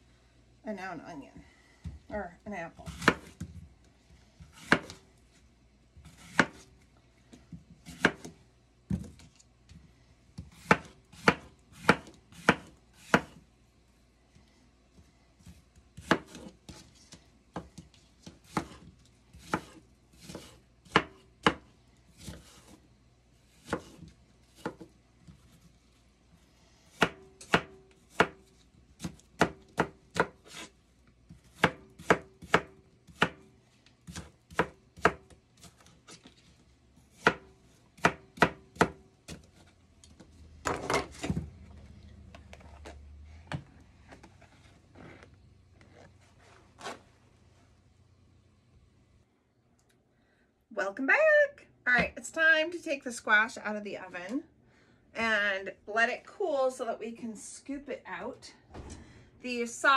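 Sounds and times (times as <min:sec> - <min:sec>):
knife chopping on cutting board: 0:02.9 - 0:03.5, 0:04.5 - 0:05.0, 0:06.0 - 0:06.7, 0:07.8 - 0:09.1, 0:10.4 - 0:13.4, 0:15.4 - 0:16.8, 0:17.6 - 0:21.6, 0:23.5 - 0:24.9, 0:26.9 - 0:30.7, 0:31.3 - 0:33.4, 0:34.0 - 0:35.9, 0:37.1 - 0:39.6.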